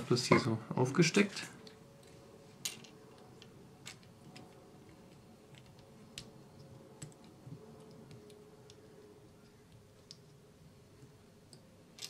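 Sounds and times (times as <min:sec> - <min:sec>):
faint clicks of small plastic parts: 0:01.6 - 0:10.4.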